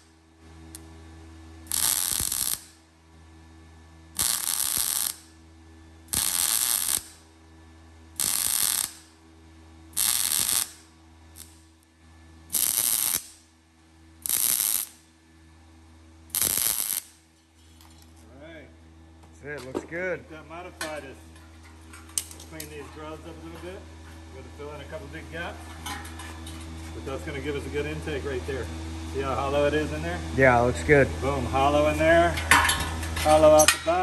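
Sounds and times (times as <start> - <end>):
welding machine hum: 0.0 - 34.0
welding arc crackling: 1.6 - 2.8, 4.2 - 5.4, 6.1 - 7.3, 8.2 - 9.2, 10.0 - 11.8, 12.5 - 13.5, 14.2 - 15.1, 16.3 - 17.3, 21.8 - 23.5.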